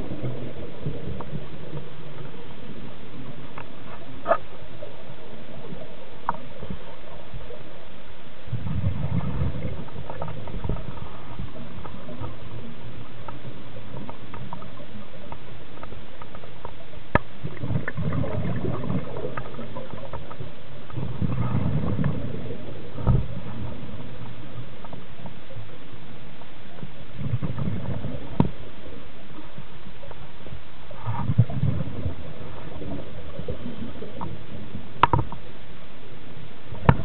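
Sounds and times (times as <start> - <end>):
steady hiss: 0.0 - 37.0
diver's breath bubbling underwater: 17.4 - 19.9.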